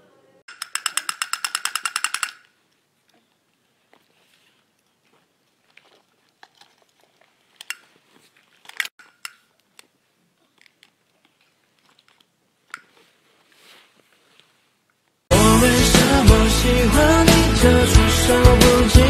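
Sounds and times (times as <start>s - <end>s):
monkey gnawing plastic toy: 0.5s - 13.1s.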